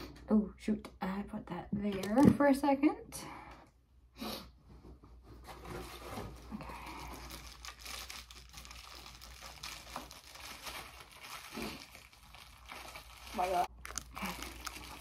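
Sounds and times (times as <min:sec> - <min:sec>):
packaging wrap crinkling: 0:06.7 - 0:15.0.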